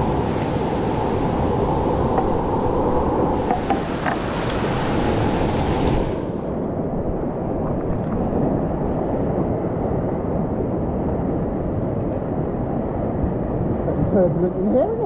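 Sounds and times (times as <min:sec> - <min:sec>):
river rapid roaring: 0:00.0 - 0:06.8.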